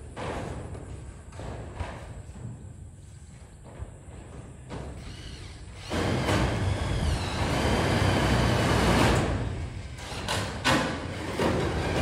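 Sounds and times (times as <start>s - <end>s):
electric drill driving screw: 5.0s - 9.3s.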